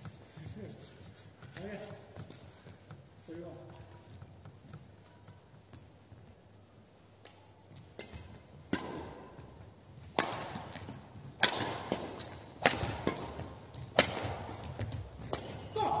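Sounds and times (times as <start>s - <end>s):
rackets striking shuttlecock: 7.2s - 15.8s.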